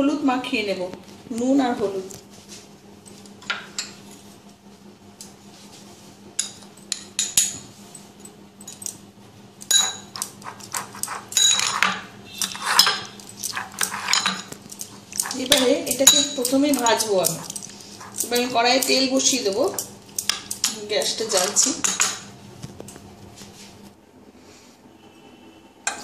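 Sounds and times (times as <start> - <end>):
metal spoon clinking on glass bowl: 9.7 - 22.3.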